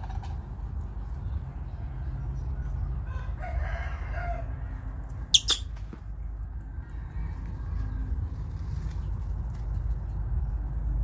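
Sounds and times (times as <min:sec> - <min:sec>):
rooster crowing: 0:03.0 - 0:04.8.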